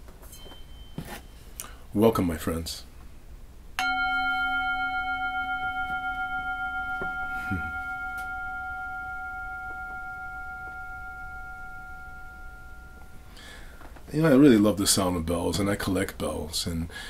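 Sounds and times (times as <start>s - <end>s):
bell ringing: 0.3s - 1.5s, 3.8s - 13.6s.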